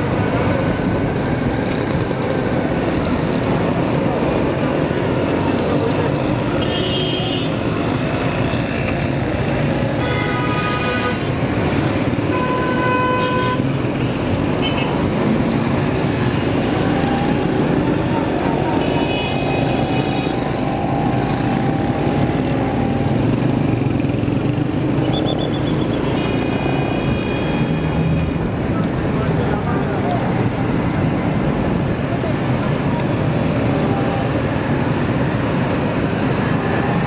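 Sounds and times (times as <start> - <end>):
vehicle horns honking: 6.6 - 7.5, 10.0 - 11.3, 12.0 - 13.7, 18.8 - 20.1, 25.2 - 28.4.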